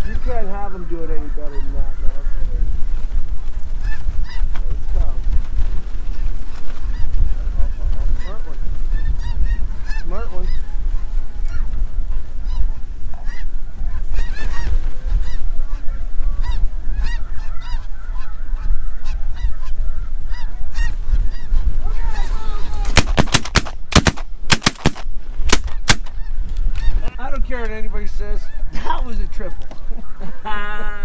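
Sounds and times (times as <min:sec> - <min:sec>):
geese calling: 0:00.0 - 0:02.6, 0:03.7 - 0:05.2, 0:06.1 - 0:27.3, 0:27.9 - 0:31.0
shotgun shots: 0:22.9 - 0:26.1.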